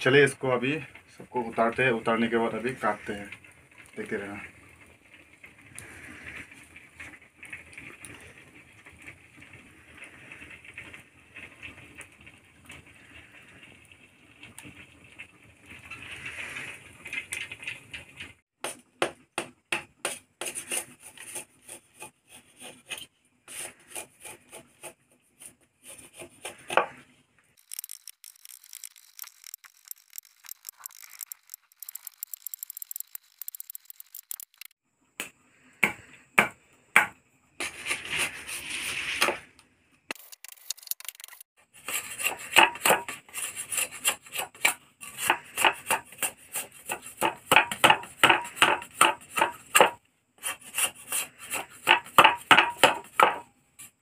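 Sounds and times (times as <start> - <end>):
wood fire crackling: 0.0 - 36.8
scraping and rubbing clicks: 25.4 - 34.8, 37.6 - 46.6.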